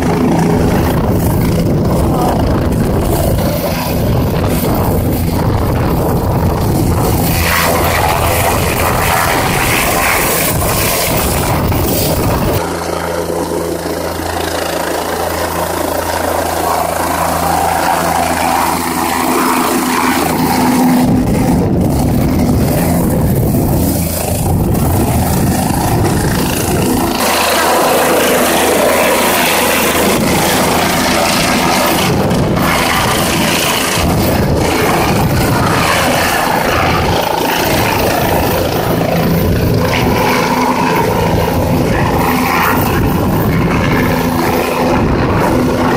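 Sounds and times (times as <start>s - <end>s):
helicopter engine hum: 0.0s - 45.9s
helicopter rotor beat: 0.0s - 45.9s.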